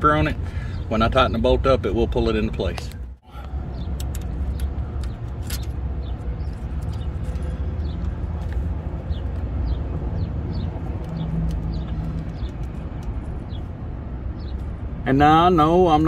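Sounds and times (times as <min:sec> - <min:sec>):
low traffic rumble: 0:00.0 - 0:16.0
small bird chirping: 0:03.7 - 0:13.7.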